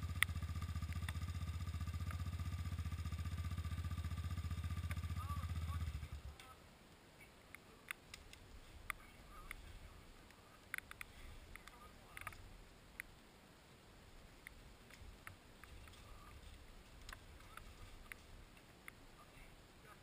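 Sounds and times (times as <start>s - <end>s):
raindrops clicking on camera: 0.1s - 1.3s, 7.5s - 13.2s, 14.3s - 19.1s.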